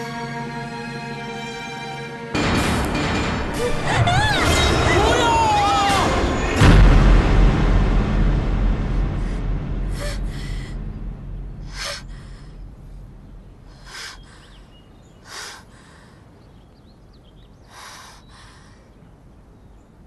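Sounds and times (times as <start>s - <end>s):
deep rumble: 2.4s - 19.6s
woman sobbing: 10.0s - 10.6s.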